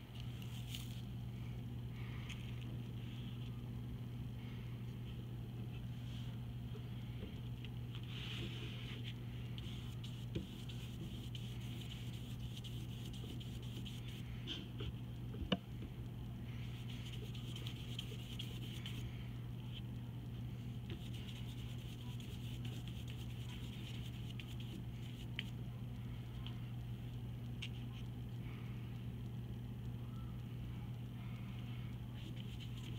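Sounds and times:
steady low hum: 0:00.0 - 0:32.9
paintbrush scrubbing paper: 0:08.0 - 0:14.7, 0:16.6 - 0:19.1, 0:20.8 - 0:25.5, 0:32.2 - 0:32.9.

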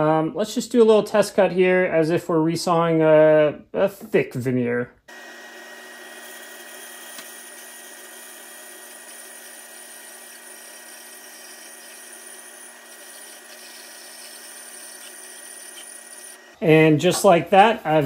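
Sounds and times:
bandsaw cutting wood: 0:05.1 - 0:16.7.

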